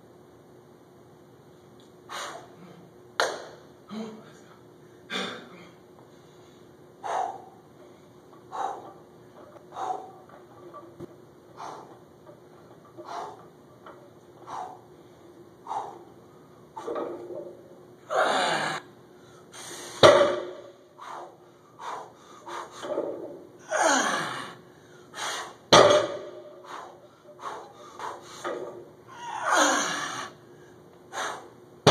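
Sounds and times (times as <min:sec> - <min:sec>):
weight plates landing on floor: 0:20.0 - 0:20.7, 0:25.7 - 0:26.4.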